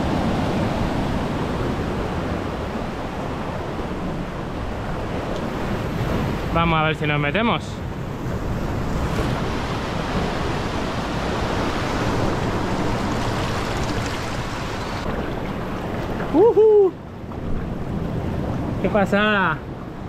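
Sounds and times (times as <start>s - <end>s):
surf washing over rocks: 0.0s - 20.0s
person's short high cry: 16.3s - 17.0s.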